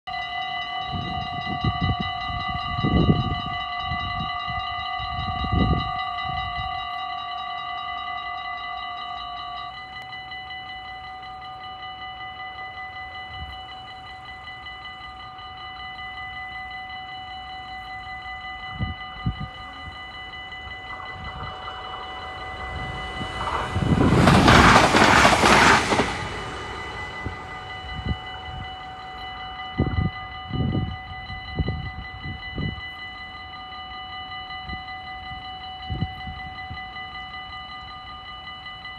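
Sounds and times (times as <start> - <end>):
train rushing past: 19.2 - 29.8.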